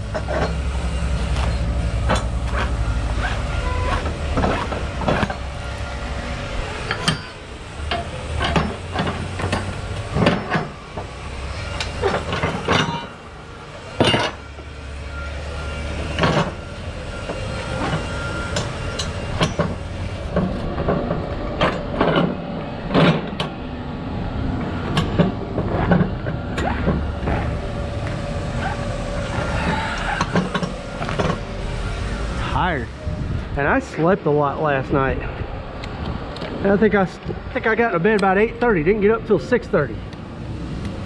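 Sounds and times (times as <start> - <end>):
metal clanks and knocks: 0.0 - 0.7, 1.3 - 5.5, 6.8 - 13.2, 14.0 - 14.7, 16.0 - 23.6, 24.9 - 31.6
low engine rumble: 0.0 - 41.0.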